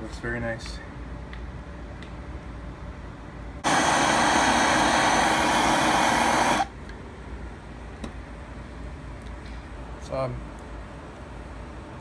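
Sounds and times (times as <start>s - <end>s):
torch flame roaring: 3.6s - 6.7s.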